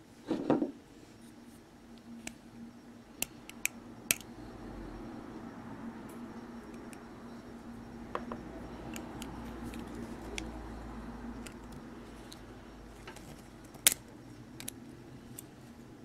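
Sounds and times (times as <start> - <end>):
lock parts clicking and tapping: 3.2 - 4.2.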